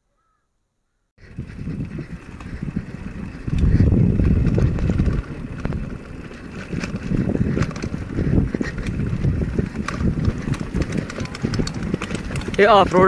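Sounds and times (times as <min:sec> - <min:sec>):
bike clicks and rattles: 0:01.2 - 0:13.0
wind buffeting microphone: 0:01.2 - 0:13.0.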